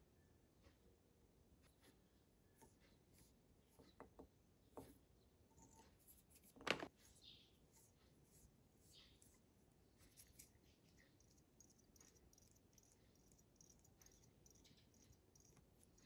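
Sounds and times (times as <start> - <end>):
faint rustling of fingers handling thread: 1.6 - 11.2.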